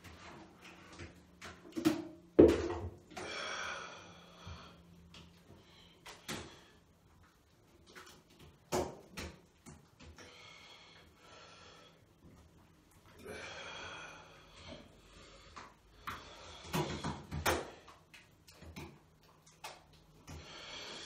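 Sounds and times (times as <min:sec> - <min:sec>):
breathing: 0:03.2 - 0:06.9, 0:10.2 - 0:12.1, 0:13.2 - 0:17.2, 0:20.3 - 0:21.0
wet squelching batter: 0:14.8 - 0:20.8.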